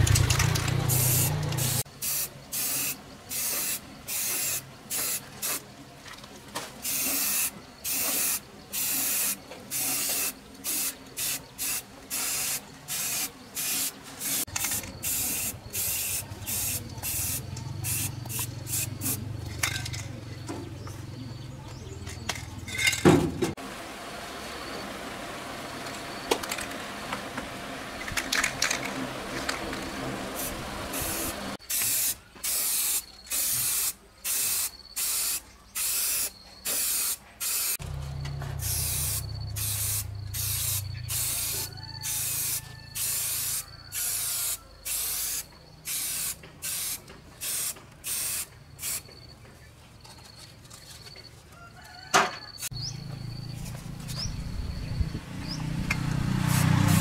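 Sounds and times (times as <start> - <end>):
spray can hissing: 0.8 - 5.6, 6.8 - 19.2, 30.4 - 37.8, 38.6 - 49.0, 56.3 - 57.0.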